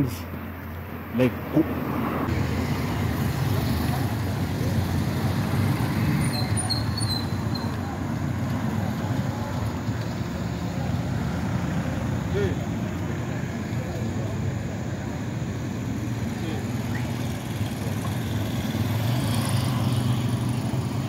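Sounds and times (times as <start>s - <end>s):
street traffic noise: 0.0s - 21.0s
car passing close: 1.2s - 21.0s.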